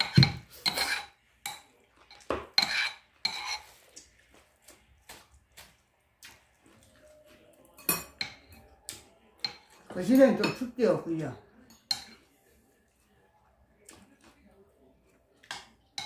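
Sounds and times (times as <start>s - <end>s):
utensils clinking against dishes: 0.0s - 3.8s, 7.6s - 12.3s.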